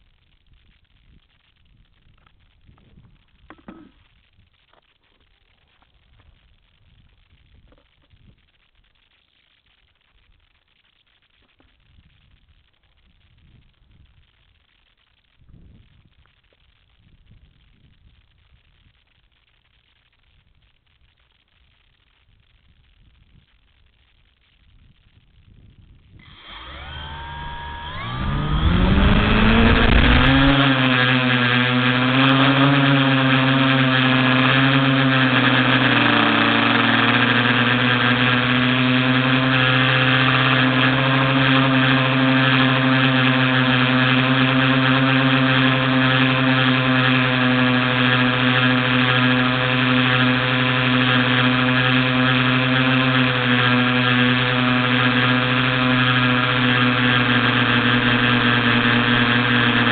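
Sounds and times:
drone motors whining: 26.2s - 59.9s.

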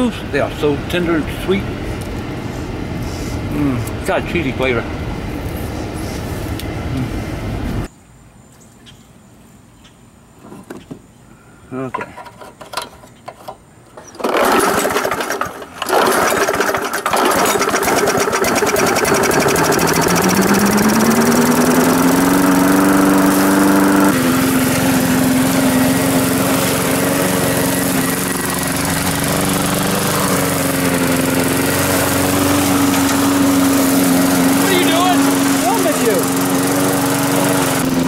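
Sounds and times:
lawn mower engine starting: 12.1s - 38.0s.

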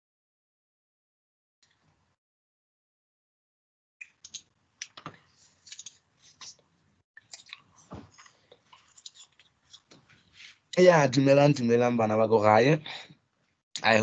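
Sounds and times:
small rustling noises: 4.2s - 10.7s.

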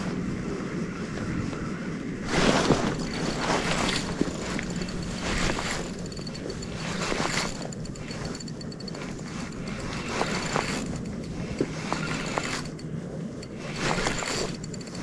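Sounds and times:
wind rushing on microphone: 0.0s - 8.3s
fishing reel ticking: 3.0s - 15.0s.

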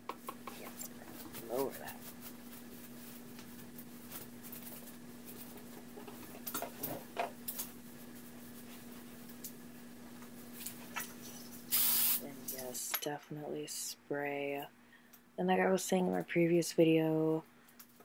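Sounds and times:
steady low hum: 0.0s - 17.9s
fingers rustling through hair: 0.2s - 6.4s.

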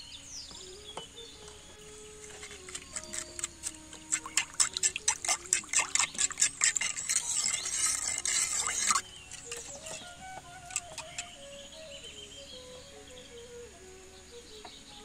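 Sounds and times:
liquid swishing: 2.2s - 11.4s.

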